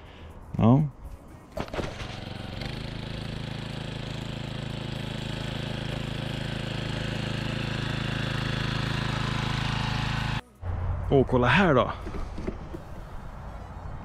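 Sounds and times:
lawn mower engine running: 0:01.6 - 0:10.4.

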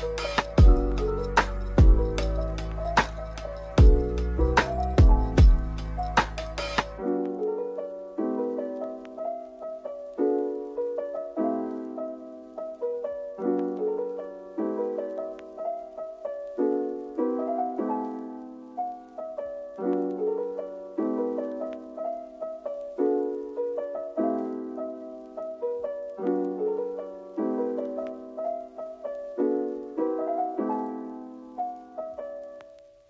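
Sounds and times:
gentle piano music: 0:00.0 - 0:33.0.

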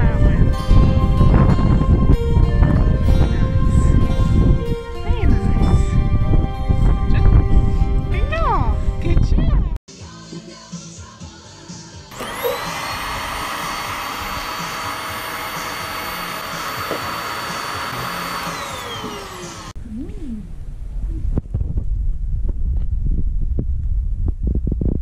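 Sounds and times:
vacuum cleaner motor: 0:12.1 - 0:19.8.

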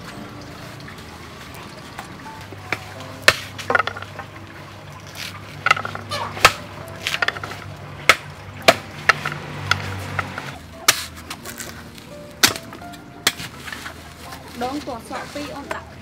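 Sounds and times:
seeds snapping open: 0:11.0 - 0:13.0.

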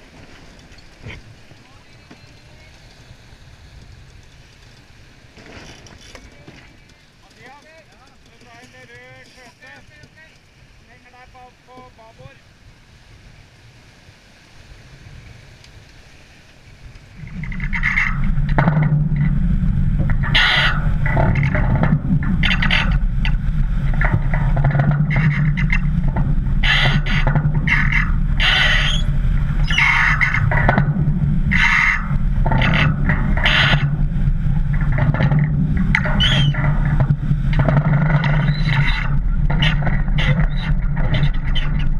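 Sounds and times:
sea water rushing along hull: 0:00.0 - 0:41.9
wind on microphone: 0:16.7 - 0:41.9
bow slamming through waves: 0:17.2 - 0:41.9
short high squeak: 0:20.2 - 0:20.9, 0:26.6 - 0:30.5, 0:31.5 - 0:33.9, 0:36.0 - 0:36.7, 0:38.0 - 0:41.9.

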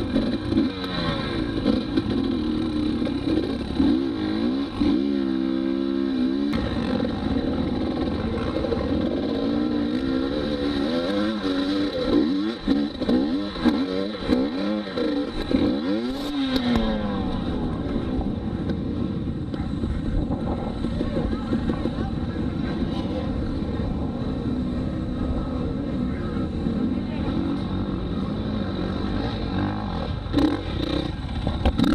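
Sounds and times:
dirt bike engine revving: 0:00.0 - 0:19.4, 0:20.2 - 0:31.9.

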